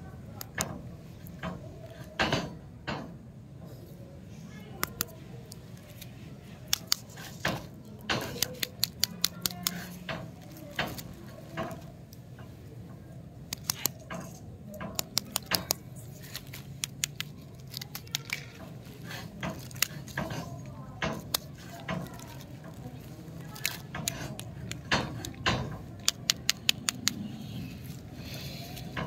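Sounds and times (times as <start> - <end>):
lollipop wrappers crinkling: 4.8 - 12.2, 13.4 - 29.0.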